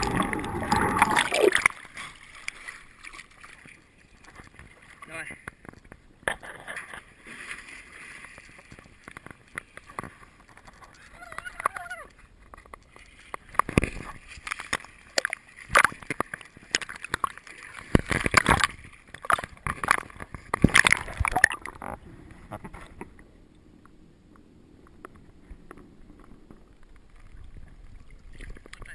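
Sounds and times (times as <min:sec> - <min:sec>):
muffled underwater sound: 0:00.0 - 0:01.7
water splashing and sloshing: 0:00.0 - 0:28.9.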